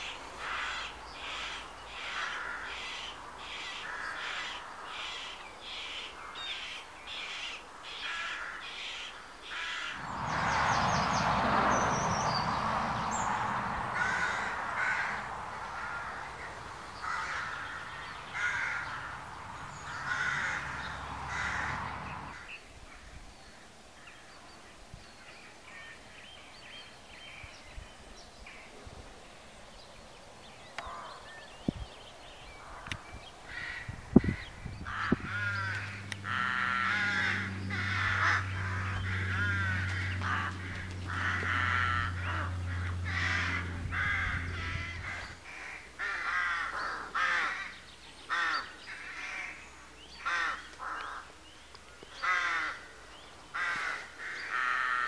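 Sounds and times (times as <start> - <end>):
crows cawing: 0.0 - 10.1, 13.8 - 22.6, 33.5 - 49.6, 50.2 - 51.4, 52.1 - 55.0
steady low drone: 34.5 - 45.6.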